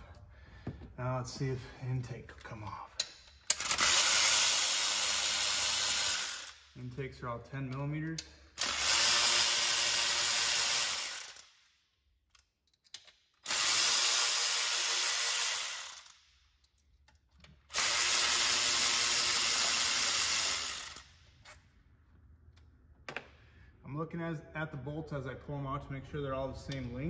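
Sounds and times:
electric ratchet spinning: 3.5 - 6.6, 8.6 - 11.5, 13.4 - 16.2, 17.7 - 21.1.

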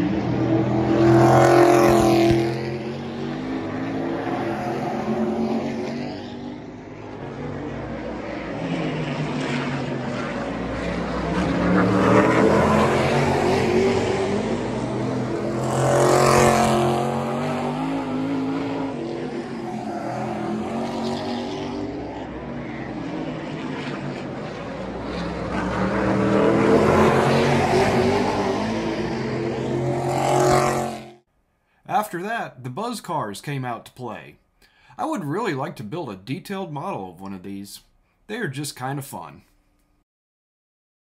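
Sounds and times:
race car engines: 0.0 - 31.2.

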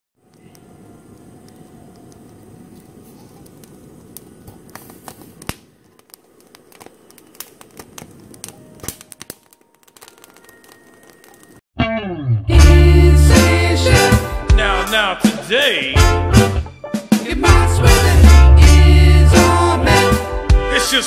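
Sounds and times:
pepper skin crackling and popping: 0.2 - 11.6
gas burner flame rushing: 0.6 - 9.4.

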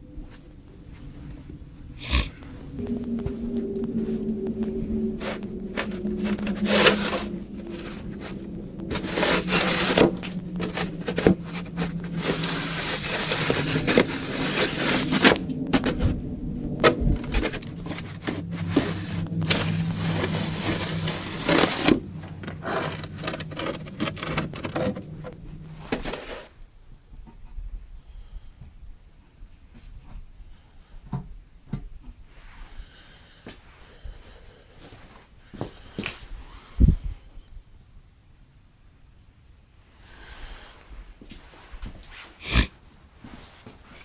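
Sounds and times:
low hum: 0.0 - 29.6.

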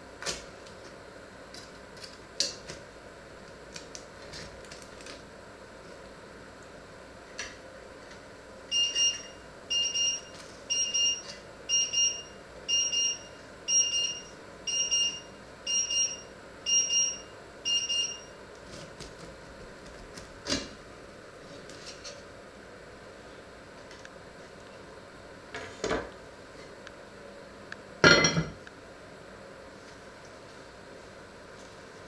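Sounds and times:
electronic alarm beeping: 8.7 - 18.3.

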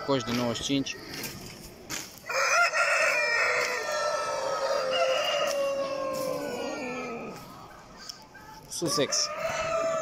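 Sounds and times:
rooster crowing: 2.2 - 7.7, 8.4 - 10.0.

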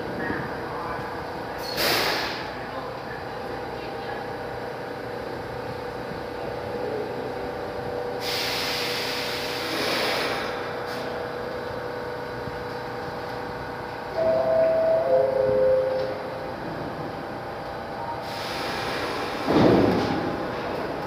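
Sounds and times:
subway train humming: 0.0 - 21.0
brake air hiss: 1.6 - 2.5, 8.2 - 11.2, 18.2 - 19.6
chime tone: 14.2 - 16.4.

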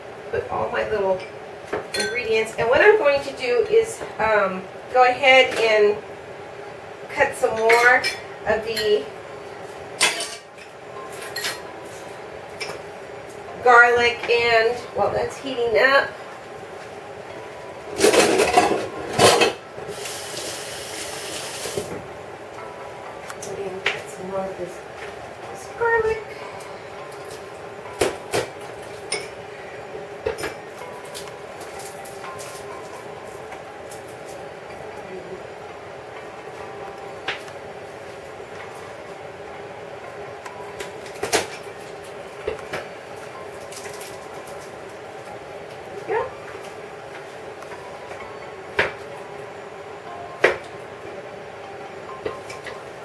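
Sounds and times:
steady hum: 0.0 - 53.0
dishes and utensils clattering: 1.2 - 2.3, 10.0 - 11.6, 18.0 - 19.6, 28.1 - 29.4.

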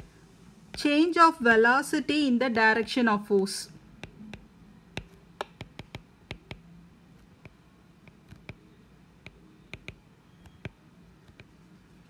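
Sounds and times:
stylus tapping on glass screen: 4.0 - 6.6, 7.4 - 8.6, 9.2 - 11.5.

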